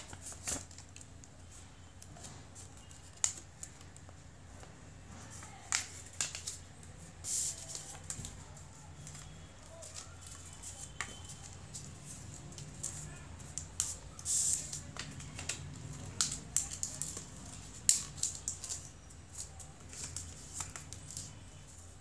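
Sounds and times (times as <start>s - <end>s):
paper rustling and crinkling: 0.0s - 4.1s, 5.2s - 22.0s
sharp paper crackles: 7.2s - 22.0s.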